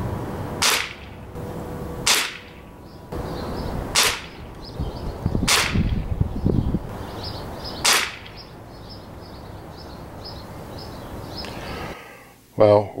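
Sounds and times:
air rifle shots: 0:00.6 - 0:01.4, 0:02.0 - 0:02.6, 0:03.8 - 0:04.5, 0:05.4 - 0:06.1, 0:07.8 - 0:08.4.

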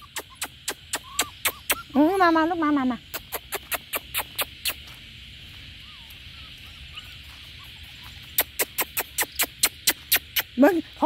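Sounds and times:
faint chirps: 0:00.0 - 0:11.0
insects droning: 0:00.0 - 0:11.0
footsteps crunching on gravel: 0:03.0 - 0:11.0.

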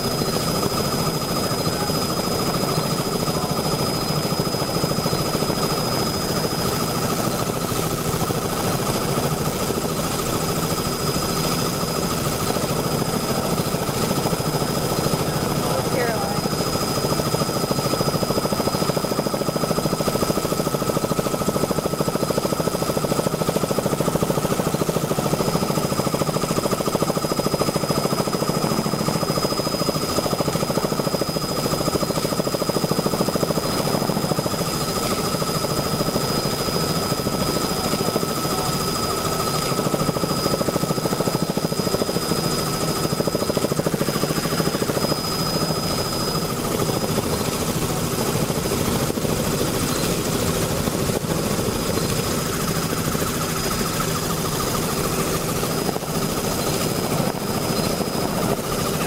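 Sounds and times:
helicopter engine and rotor drone: 0:00.0 - 0:59.0.

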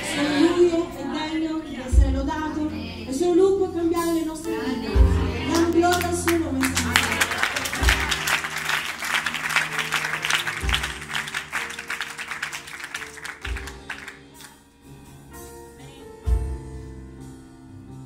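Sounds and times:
congregation applauding: 0:05.6 - 0:14.6.

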